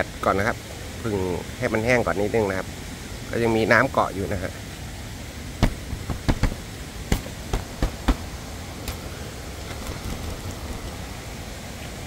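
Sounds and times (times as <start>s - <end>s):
steady rushing hiss: 0.0s - 12.0s
hand tapping tent fabric: 5.6s - 8.3s.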